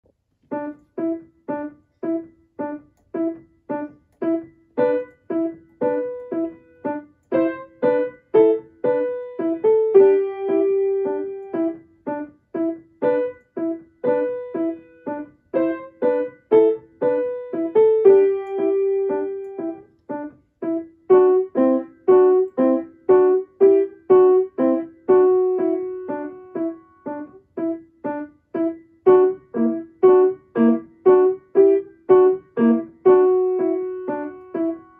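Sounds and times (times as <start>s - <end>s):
grand piano playing: 0.5s - 34.9s.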